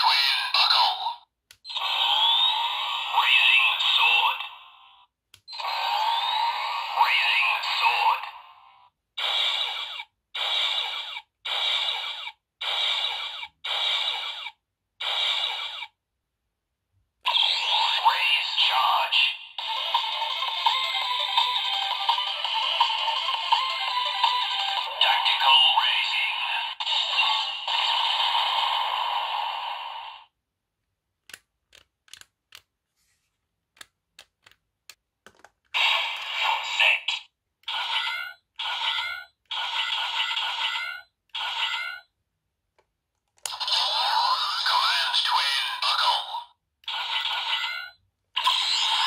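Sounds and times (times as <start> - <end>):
toy electronic sound effect: 0.0 - 4.7, 5.5 - 16.0, 17.3 - 30.3, 35.8 - 42.1, 43.5 - 49.0
plastic toy clicks: 31.2 - 32.7.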